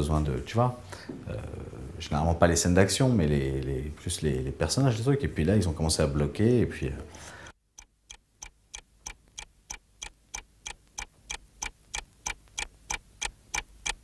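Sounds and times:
steady ticking: 7.6s - 14.0s.

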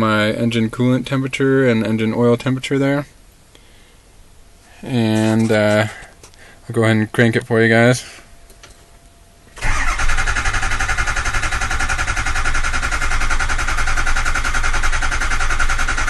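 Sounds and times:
diesel engine cranking on starter: 9.6s - 16.0s.

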